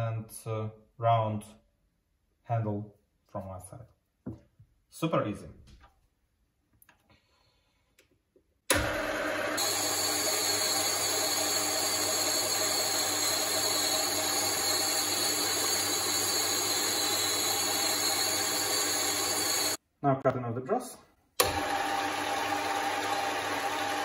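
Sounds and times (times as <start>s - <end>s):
metal lathe running: 8.7s - 19.8s, 21.4s - 24.0s.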